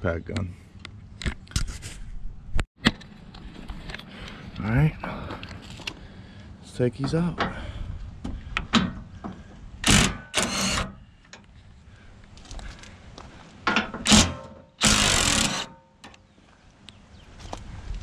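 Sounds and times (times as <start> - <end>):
impact gun hammering bolts: 9.8 - 11.0, 13.7 - 15.8.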